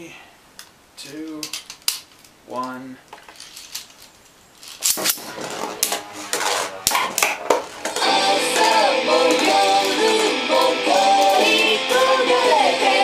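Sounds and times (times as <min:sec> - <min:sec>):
spinning top clattering: 0:03.2 - 0:12.0
background music: 0:05.2 - 0:13.0.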